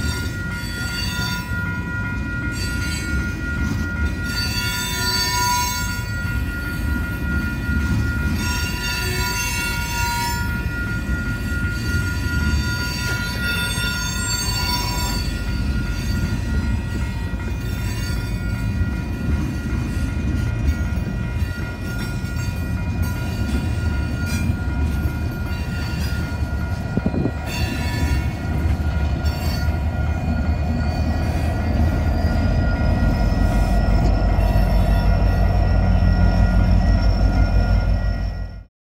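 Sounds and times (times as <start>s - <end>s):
freight train rumble: 0.0s - 38.7s
train wheel squeal: 0.0s - 38.7s
locomotive engine: 10.6s - 38.7s.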